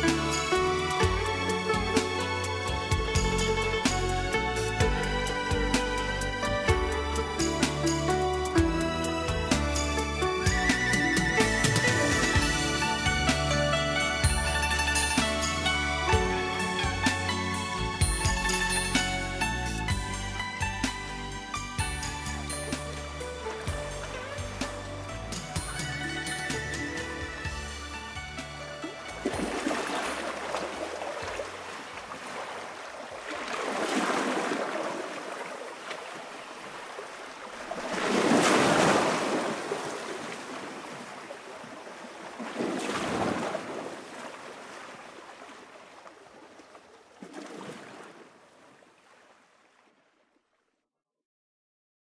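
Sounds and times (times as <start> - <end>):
surf-like rushing noise: 29.2 - 45.7.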